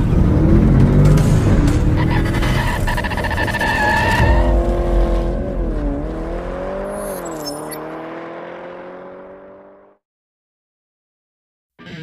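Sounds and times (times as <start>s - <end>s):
car engine running: 0.0s - 9.9s
car tyres squealing: 1.7s - 7.8s.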